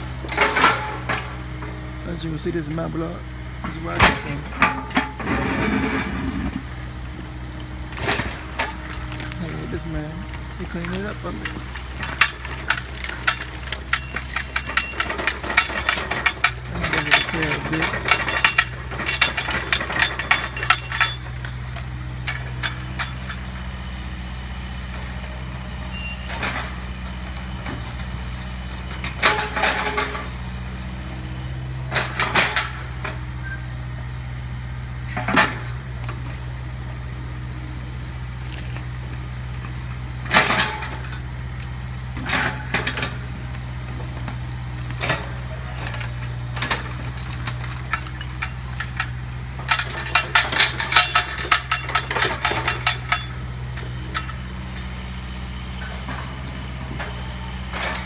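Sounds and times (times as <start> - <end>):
excavator diesel engine running: 0.0 - 58.0
debris crashing and clattering: 3.8 - 23.6, 37.8 - 41.4, 42.2 - 53.5.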